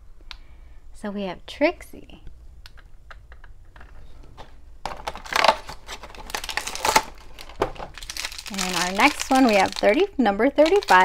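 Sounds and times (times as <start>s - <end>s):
plastic bag crinkling: 4.9s - 11.0s.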